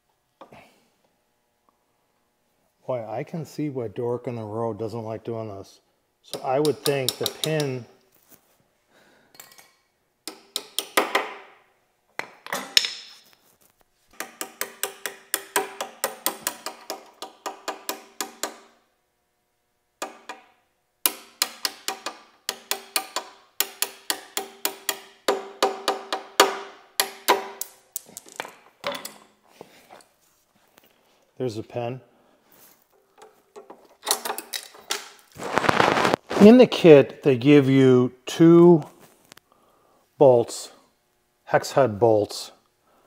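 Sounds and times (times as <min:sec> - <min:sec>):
hammer tapping metal pin: 0:06.3 - 0:07.8, 0:21.1 - 0:29.2.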